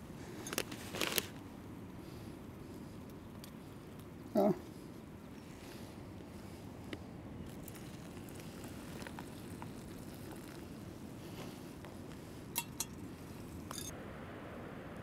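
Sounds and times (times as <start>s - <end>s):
low wind rumble: 0.0s - 15.0s
water pouring: 7.5s - 10.9s
metal pot clinks: 12.6s - 13.0s, 13.7s - 13.9s.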